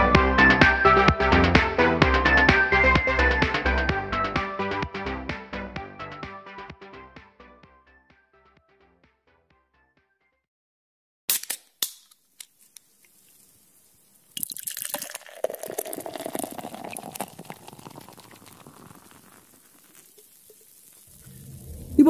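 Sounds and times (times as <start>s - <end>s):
liquid pouring: 14.3s - 22.0s.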